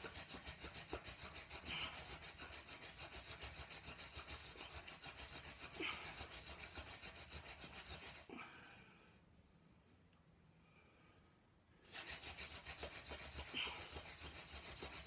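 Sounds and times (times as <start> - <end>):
wood rubbing on wood: 0.0 - 8.3, 11.9 - 15.0.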